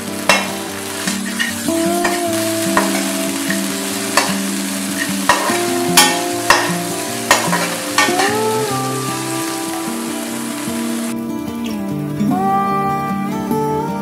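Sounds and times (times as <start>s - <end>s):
vegetables sizzling in oil: 0.0s - 11.2s
metal spatula scraping pan: 0.3s - 8.6s.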